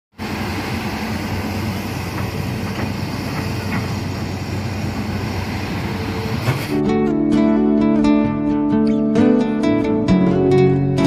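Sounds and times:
excavator running: 0.1 - 7.5.

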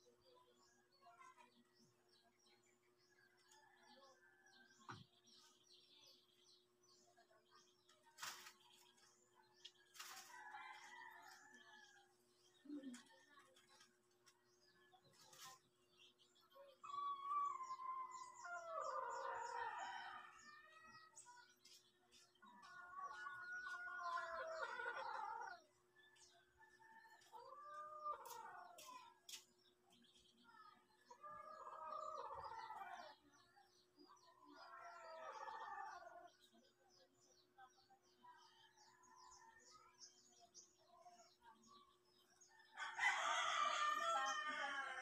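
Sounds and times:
rooster crowing: 42.8 - 45.0.

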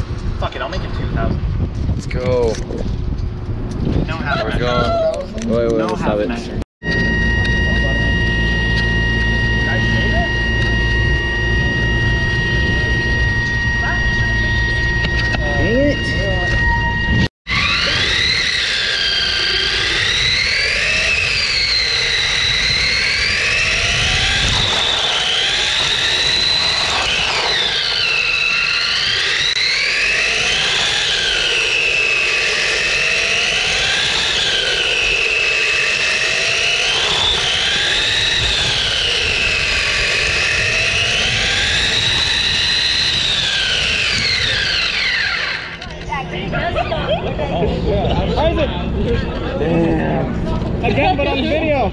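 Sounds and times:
electric motor whining: 6.8 - 46.1.

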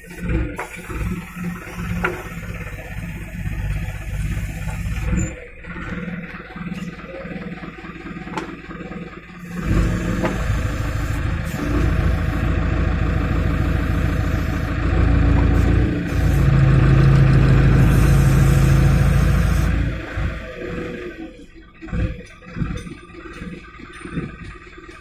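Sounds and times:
crane engine revving: 0.0 - 25.0.

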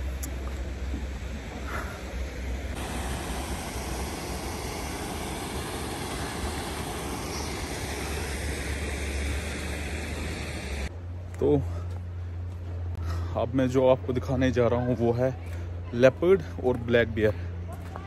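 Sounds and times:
water rushing through sluice: 2.7 - 10.9.

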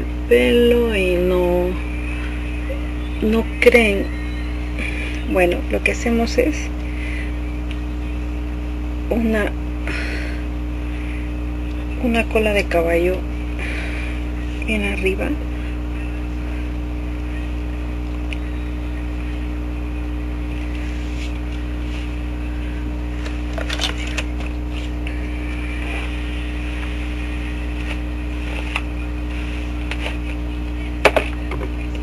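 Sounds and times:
steady low hum: 0.0 - 32.0
hair brush rustling: 25.7 - 30.5.

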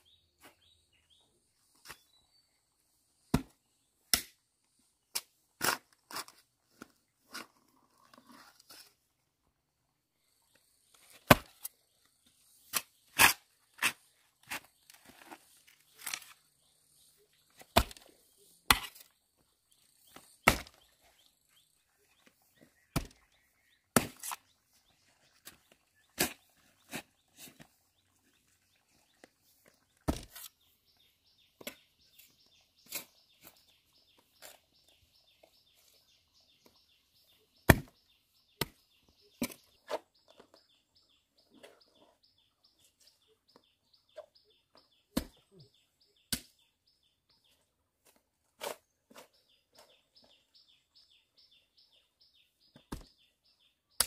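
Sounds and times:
sharp chopping strikes: 20.4 - 20.8, 37.7 - 37.9.

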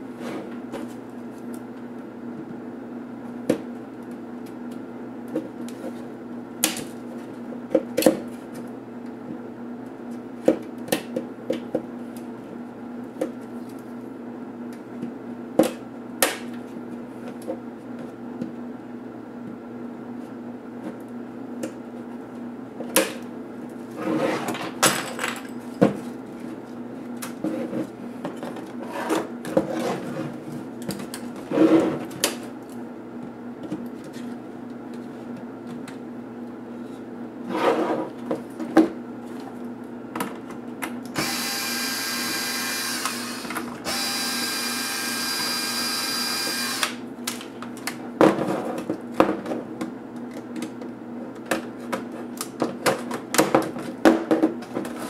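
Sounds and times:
electric screwdriver running: 41.2 - 47.0.

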